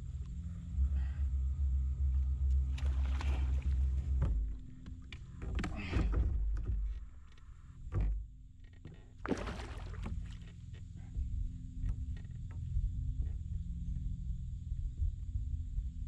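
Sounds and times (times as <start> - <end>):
low rumble of water and wind: 0.0 - 16.0
water splashing: 2.7 - 4.1, 9.2 - 10.4.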